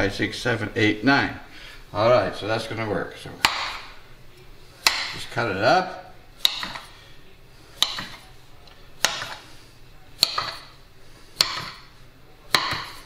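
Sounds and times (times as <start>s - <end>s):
knife tapping on countertop: 10.2s - 10.6s, 11.4s - 11.8s, 12.5s - 13.0s.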